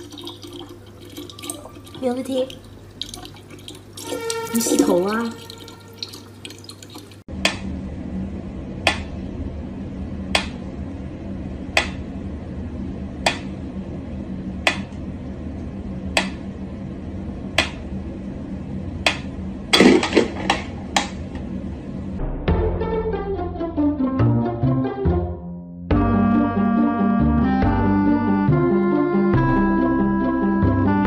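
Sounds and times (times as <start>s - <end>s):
low steady hum: 0.0s - 22.4s.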